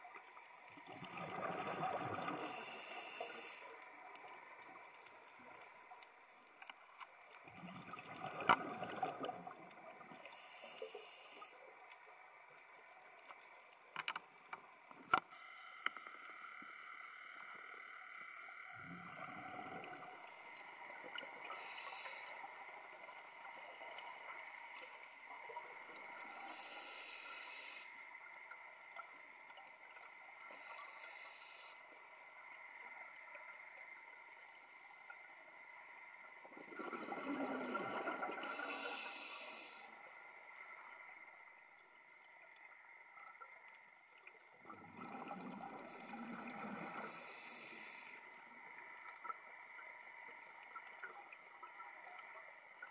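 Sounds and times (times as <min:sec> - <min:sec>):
faint steady tones: 0:00.0 - 0:52.9
exhaled bubbles gurgling: 0:00.7 - 0:03.4, 0:07.4 - 0:10.6, 0:18.8 - 0:26.9, 0:36.3 - 0:39.3, 0:43.2 - 0:52.9
scuba regulator breathing underwater: 0:01.2 - 0:03.8, 0:10.2 - 0:11.6, 0:21.3 - 0:22.6, 0:26.2 - 0:28.0, 0:30.5 - 0:31.8, 0:36.7 - 0:40.0, 0:45.2 - 0:48.4.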